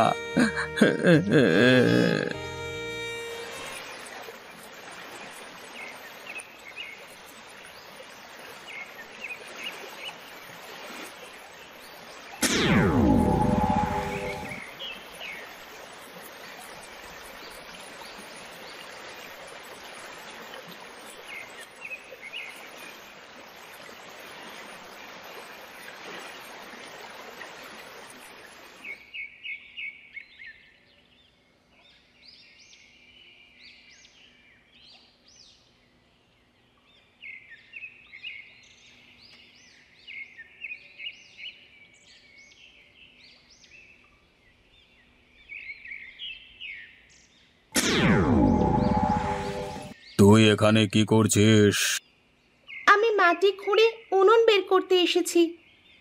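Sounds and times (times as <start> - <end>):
flowing water rushing: 15.6 - 28.8.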